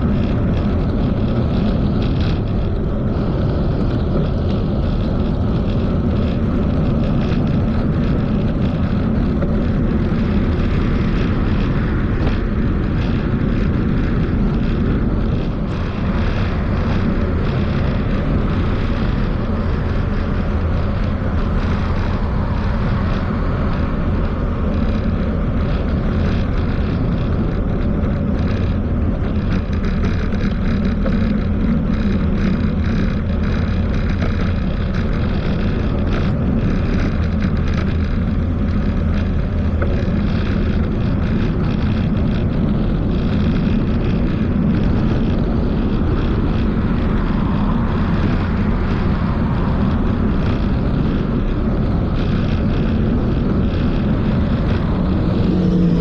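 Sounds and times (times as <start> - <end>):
tyre and road noise: 0.0 - 56.0
wind rumble on microphone: 0.0 - 56.0.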